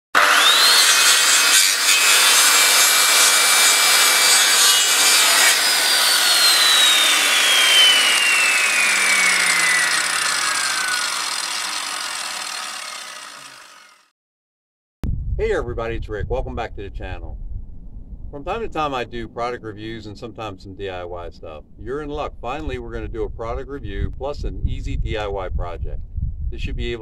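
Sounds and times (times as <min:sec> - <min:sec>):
noisy intro whine sliding down: 0:06.2 - 0:12.1.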